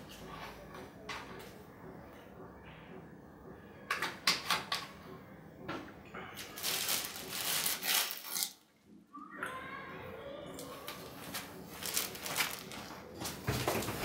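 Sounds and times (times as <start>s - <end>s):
plastic bag rustling: 6.4s - 8.6s, 10.9s - 14.0s.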